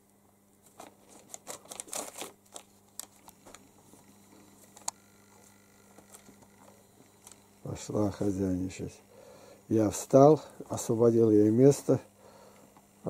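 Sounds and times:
paper rustling: 0:00.6 - 0:07.4.

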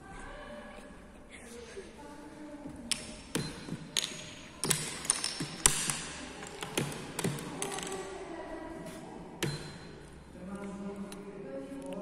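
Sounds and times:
game pieces tapped on board: 0:02.9 - 0:08.0.

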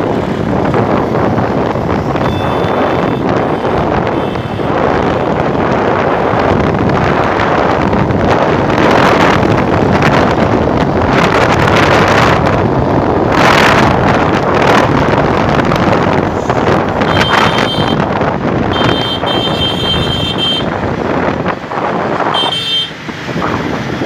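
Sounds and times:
motorcycle running: 0:00.0 - 0:24.0
road noise: 0:00.0 - 0:24.0
wind buffeting microphone: 0:00.0 - 0:24.0.

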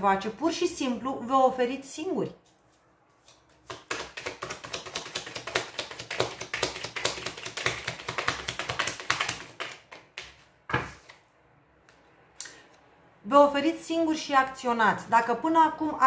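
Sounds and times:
cards being shuffled: 0:02.4 - 0:11.2.

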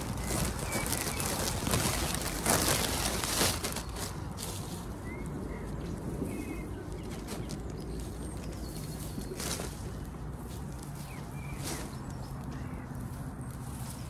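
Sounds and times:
plastic bag rustling: 0:00.0 - 0:05.0, 0:06.9 - 0:12.0.

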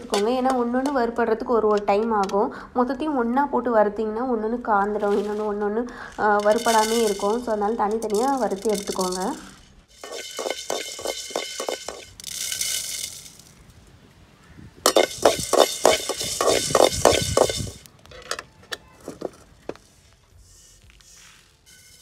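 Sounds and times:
metal spatula scraping in a pan: 0:06.2 - 0:13.1, 0:14.9 - 0:17.9, 0:20.0 - 0:22.0.

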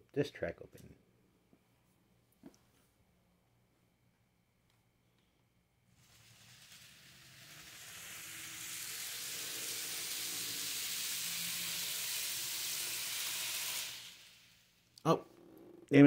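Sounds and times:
model train wheels hissing on rail: 0:05.9 - 0:15.0.

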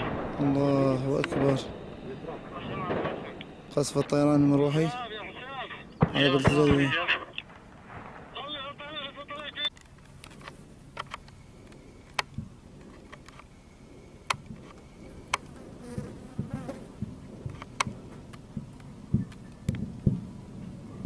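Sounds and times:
steady buzzing hum: 0:00.0 - 0:20.9
dull low thumps: 0:15.9 - 0:20.4.

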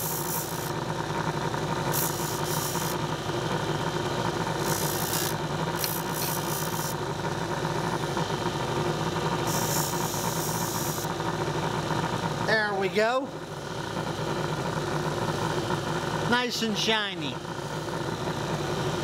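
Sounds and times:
disc sander motor running: 0:00.0 - 0:19.0
bolt grinding on sanding disc: 0:04.6 - 0:06.9.

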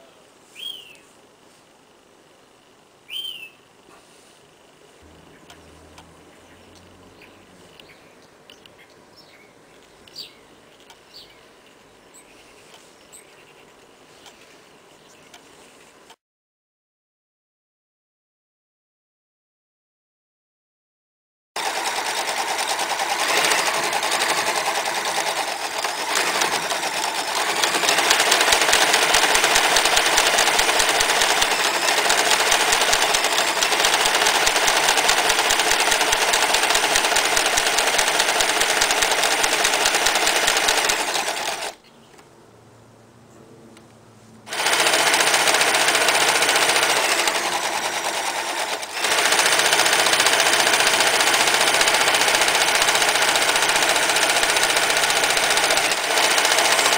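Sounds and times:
sewing machine stitching: 0:21.6 - 0:41.8, 0:44.5 - 0:56.9.

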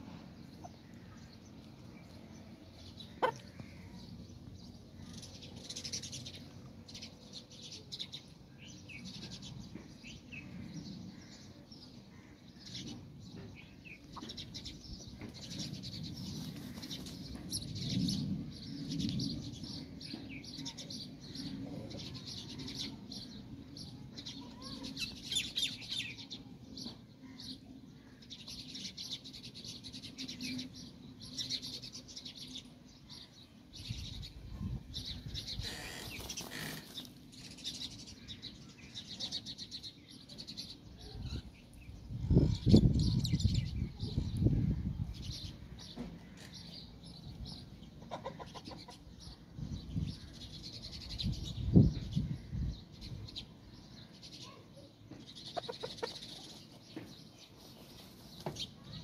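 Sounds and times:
small birds chirping: 0:00.0 - 0:59.0
loud flurry of feathers rustling: 0:35.8 - 0:37.2
rooster scratching in dry soil: 0:57.6 - 0:58.4.

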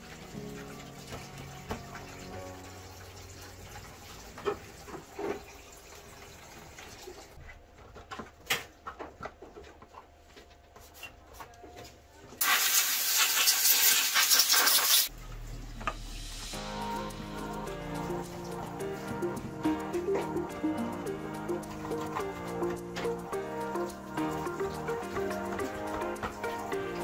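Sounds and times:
loud rushing hiss: 0:15.9 - 0:18.0.

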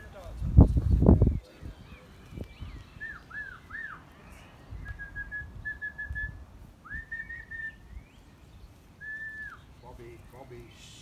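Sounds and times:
whistled commands: 0:02.6 - 0:04.1, 0:04.7 - 0:08.3, 0:09.0 - 0:10.2.

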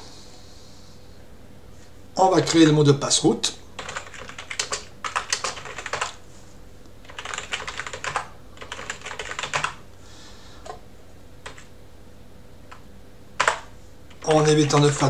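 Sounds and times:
typing on computer keyboard: 0:03.8 - 0:06.2, 0:07.0 - 0:09.8, 0:11.4 - 0:11.7, 0:13.4 - 0:15.0.

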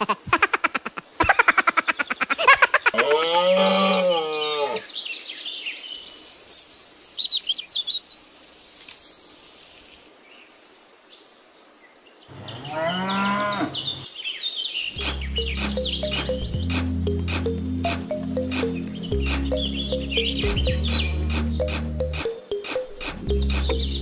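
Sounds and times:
high insect-like hiss: 0:06.0 - 0:10.9
cow mooing: 0:12.3 - 0:14.0
short high chirps: 0:15.0 - 0:24.0.

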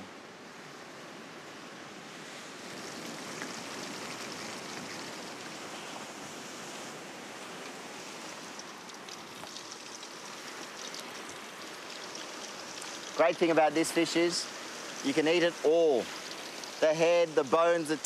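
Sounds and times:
surf washing: 0:00.0 - 0:18.0
oil crackling: 0:08.2 - 0:17.4
oil sizzling in a pan: 0:08.4 - 0:16.9.

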